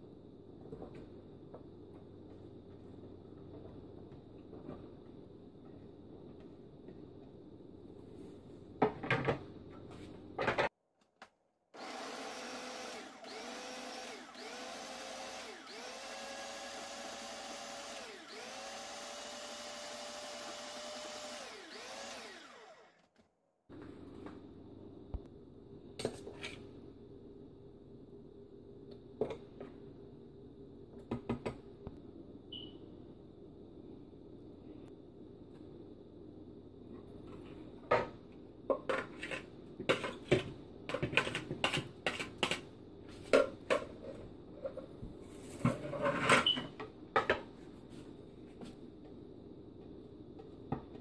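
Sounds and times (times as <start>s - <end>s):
food processor motor running: 11.8s - 23.1s
spoon scraping plastic bowl: 38.8s - 43.3s.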